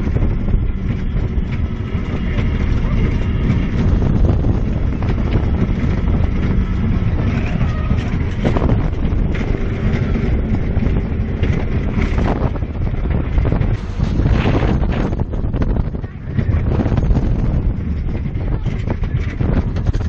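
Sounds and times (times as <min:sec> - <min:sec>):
roller coaster wheels rumbling: 0:00.0 - 0:20.0
wind buffeting microphone: 0:00.0 - 0:20.0.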